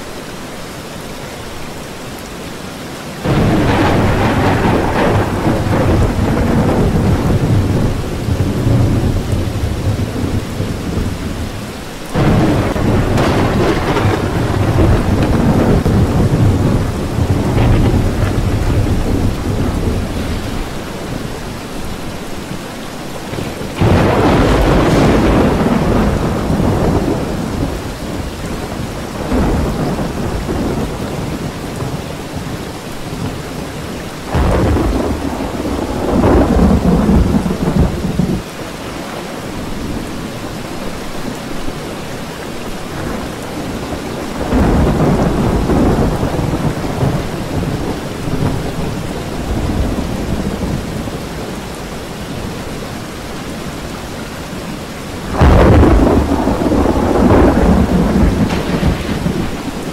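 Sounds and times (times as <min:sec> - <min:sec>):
rain hiss: 0:00.0 - 0:59.9
rolling thunder: 0:03.2 - 0:22.4, 0:23.2 - 0:32.5, 0:34.2 - 0:39.0, 0:42.8 - 0:51.7, 0:55.2 - 0:59.9.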